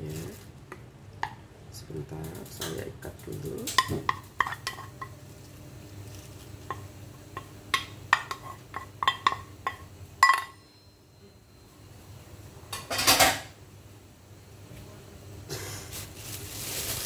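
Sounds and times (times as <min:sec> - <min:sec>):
metal pot and lid clinking: 0:07.7 - 0:10.6.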